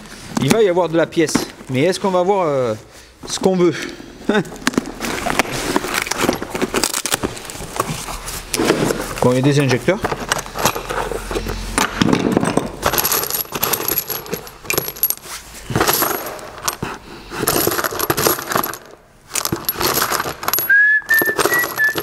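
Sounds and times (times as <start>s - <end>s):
metal parts clinking: 4.6s - 7.8s, 8.5s - 22.0s.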